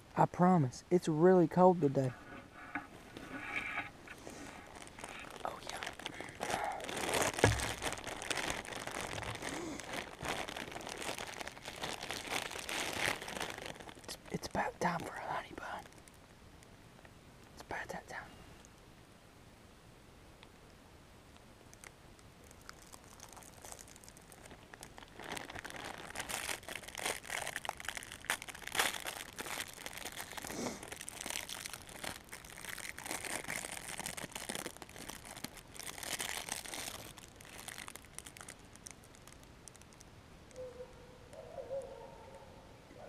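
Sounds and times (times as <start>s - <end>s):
plastic wrapper crinkling: 4.0s - 16.2s, 21.7s - 40.6s.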